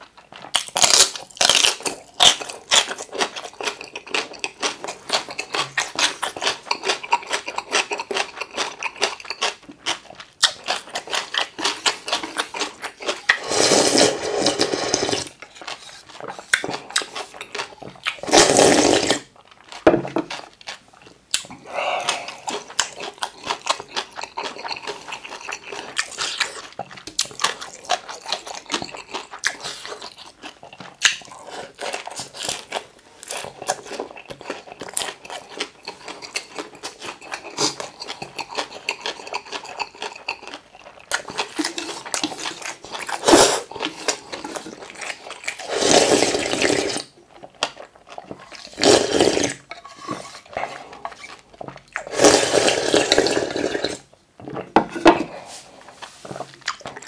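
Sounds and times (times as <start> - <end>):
wet chewing: 0.0 - 54.0, 55.8 - 57.0
loud slurps: 13.3 - 15.3, 45.6 - 47.1, 48.7 - 49.6, 52.0 - 54.0.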